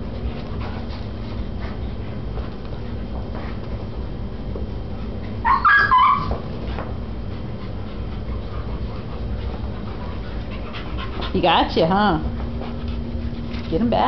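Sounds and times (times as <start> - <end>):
dogs play-wrestling: 0.0 - 14.0
dog high-pitched cry: 5.4 - 6.4.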